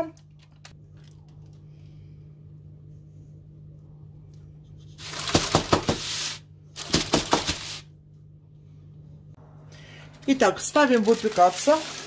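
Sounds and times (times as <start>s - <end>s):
steady low hum: 0.0s - 10.7s
parchment crinkling and scraping: 4.8s - 7.8s, 10.4s - 12.0s.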